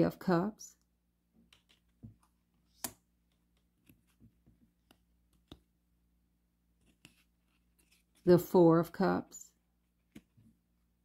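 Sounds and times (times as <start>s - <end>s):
cards being handled: 1.4s - 5.9s, 6.6s - 8.3s, 9.9s - 10.6s.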